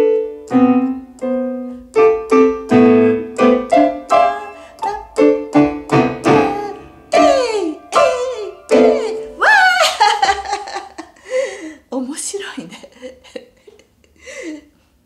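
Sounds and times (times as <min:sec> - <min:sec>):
electronic keyboard piano notes and chords: 0:00.0 - 0:09.4.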